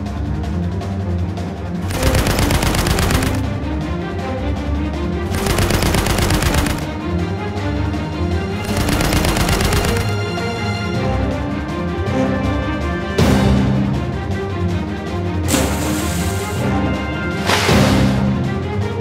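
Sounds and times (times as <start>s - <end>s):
background music: 0.0s - 19.0s
rapid anti-aircraft gunfire: 1.8s - 3.8s, 5.2s - 7.0s, 8.6s - 10.4s.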